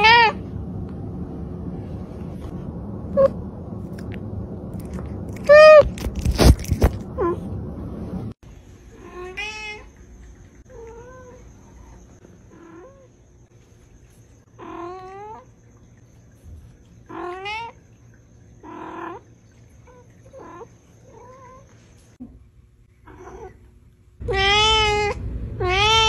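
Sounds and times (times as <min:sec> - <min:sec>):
cat meowing: 0:00.0 - 0:00.4, 0:05.4 - 0:05.9, 0:24.2 - 0:26.0.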